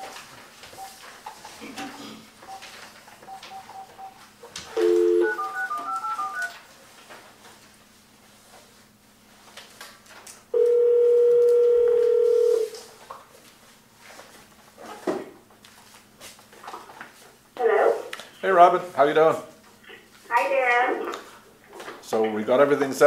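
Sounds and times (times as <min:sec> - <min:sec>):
touch-tone keypad beeps: 0:03.3 - 0:04.1, 0:04.8 - 0:06.6
telephone dial tone: 0:04.8 - 0:06.6, 0:10.6 - 0:12.7
telephone ringback tone: 0:04.8 - 0:06.6, 0:10.6 - 0:12.8.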